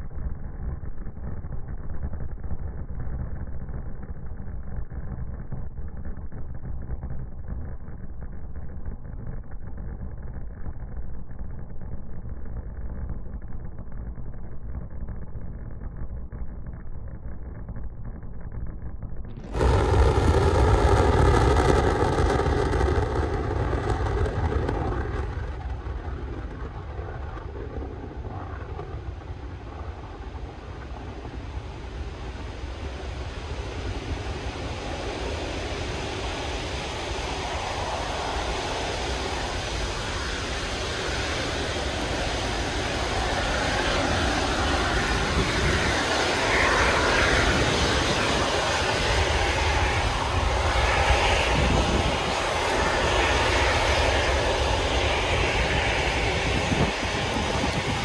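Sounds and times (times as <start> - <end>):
rocket launch rumble: 0.0 - 58.0
exhaust rushing noise: 19.4 - 58.0.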